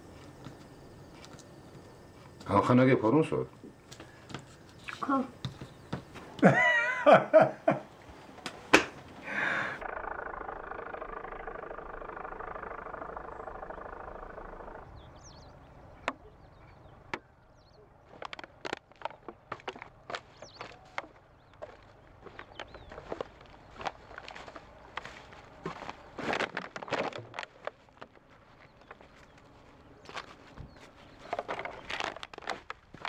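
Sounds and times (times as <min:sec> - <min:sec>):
man laughing: 0:06.4 - 0:07.9
steady noise: 0:09.4 - 0:15.9
crunching footsteps: 0:15.6 - 0:33.0.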